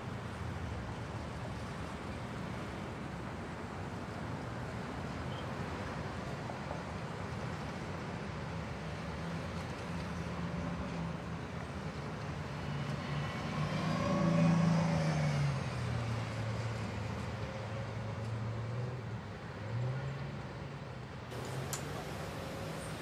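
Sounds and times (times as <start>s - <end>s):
vehicle engine passing by: 13.1s - 15.8s.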